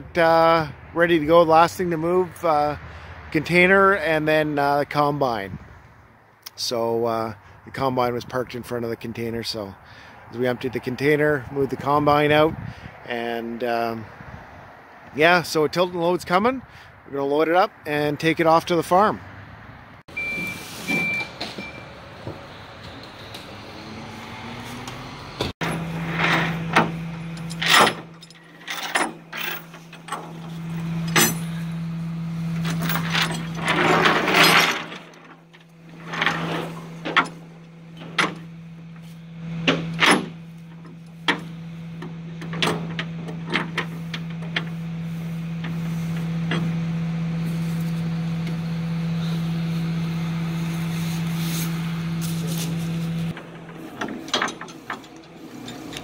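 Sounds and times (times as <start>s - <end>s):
tow truck humming: 19.3s - 56.0s
metal chain clanking on steel: 25.6s - 31.8s, 32.6s - 38.5s, 39.6s - 41.5s, 42.4s - 44.7s, 53.3s - 56.0s.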